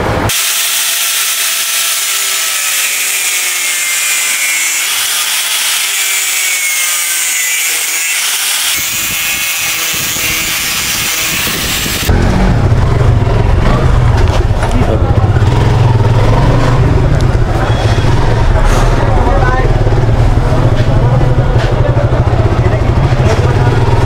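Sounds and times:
angle grinder cutting metal: 0.3 - 12.1
motorcycle running: 2.0 - 24.0.

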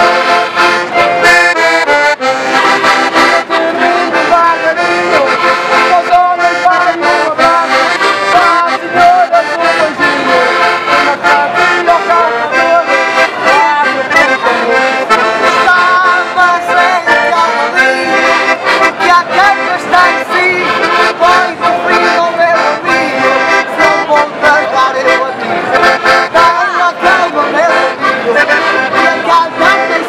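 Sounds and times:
accordion folk tune: 0.0 - 30.0.

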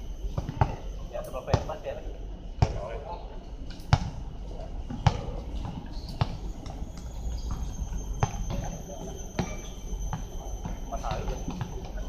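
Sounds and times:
basketball bouncing on hard court: 2.6 - 2.8, 4.9 - 6.4.

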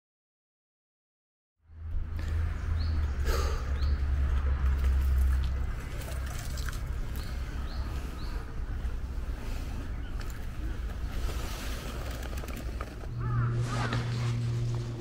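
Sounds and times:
low rumble: 7.3 - 15.0.

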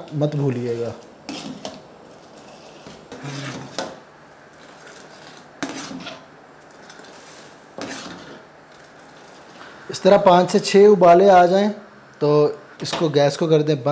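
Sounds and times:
ladle stirring and pouring liquid: 1.2 - 9.7.

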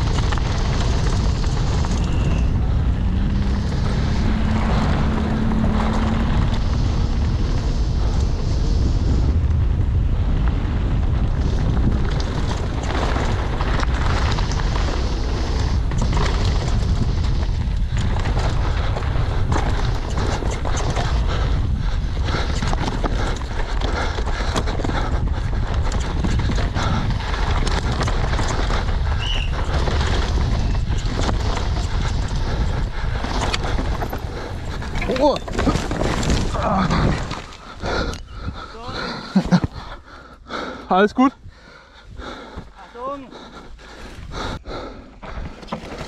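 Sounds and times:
tyres rolling over gravel: 0.0 - 9.2, 10.2 - 20.1, 22.6 - 38.1, 43.9 - 46.0
wind on microphone: 0.0 - 40.6.

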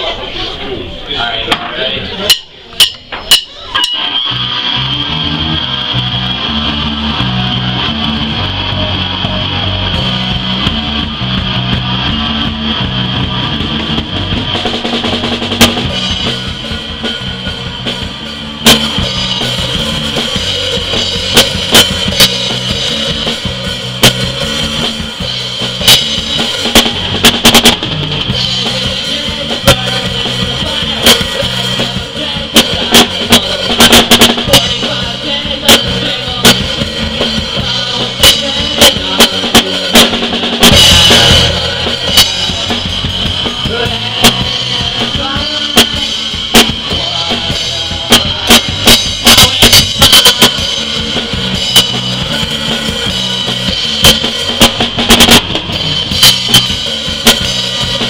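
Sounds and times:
live rock band playing: 2.0 - 58.0
loud drum hits: 12.8 - 28.7, 32.6 - 35.0, 38.2 - 52.3, 53.0 - 57.6.

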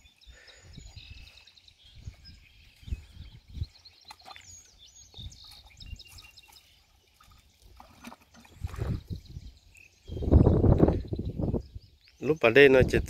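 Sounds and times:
wind buffeting microphone: 0.0 - 4.0, 4.7 - 6.5, 8.4 - 13.0
small birds chirping: 0.0 - 13.0.

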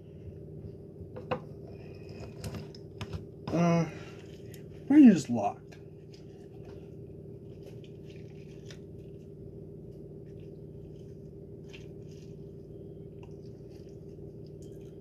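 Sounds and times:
steady low hum: 0.0 - 15.0
lemon squishing and crackling: 3.5 - 15.0.

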